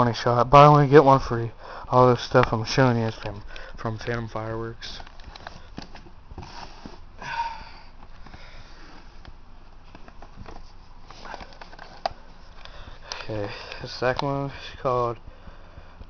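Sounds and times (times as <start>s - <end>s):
close breathing: 1.6s - 1.9s, 3.4s - 3.8s, 5.4s - 9.3s, 11.0s - 16.0s
handling rustle: 2.3s - 7.2s, 8.0s - 14.8s.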